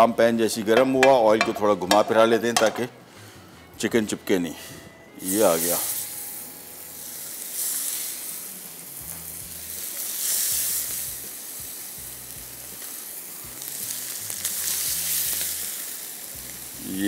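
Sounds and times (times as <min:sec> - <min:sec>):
chicken sizzling in a frying pan: 0:05.2 - 0:17.0.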